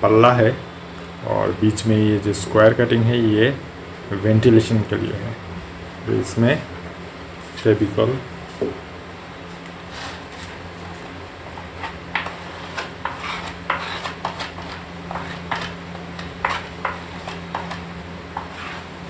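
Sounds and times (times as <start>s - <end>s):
spreader scraping glue on wood: 11.8s - 17.8s, 18.4s - 19.0s.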